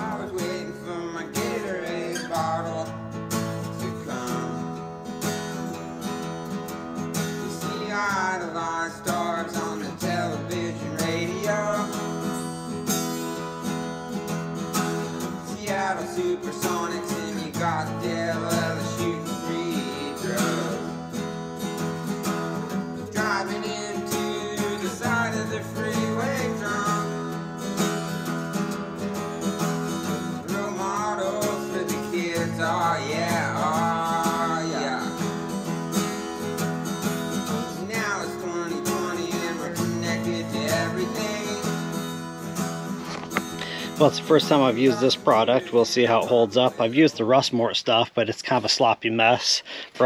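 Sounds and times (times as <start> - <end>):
background music with strummed guitar: 0.0 - 47.6.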